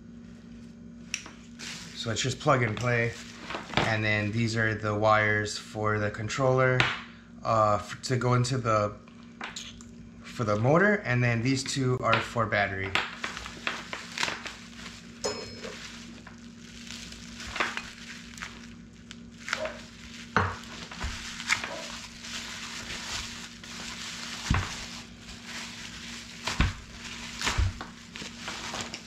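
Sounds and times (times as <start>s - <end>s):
bubble wrap rustling: 0.2s - 4.5s, 12.7s - 29.0s.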